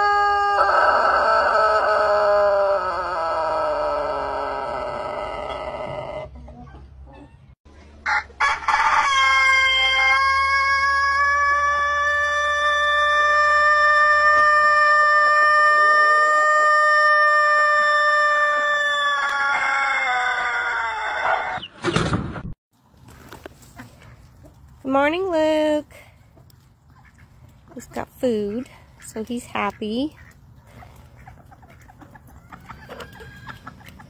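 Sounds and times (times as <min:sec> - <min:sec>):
rooster crowing: 0:00.0 - 0:06.3, 0:08.1 - 0:21.6, 0:32.4 - 0:33.7.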